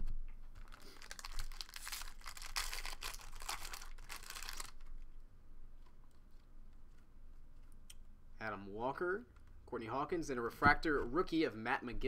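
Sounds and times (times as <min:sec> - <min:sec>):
foil wrapper crinkling and tearing: 0:00.5 - 0:05.1.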